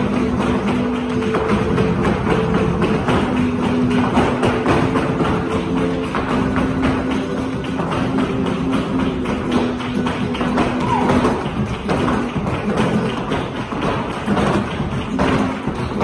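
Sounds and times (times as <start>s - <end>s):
flamenco music: 0.0s - 16.0s
heeled shoes striking floor: 0.0s - 16.0s
rhythmic hand-clapping: 0.0s - 16.0s.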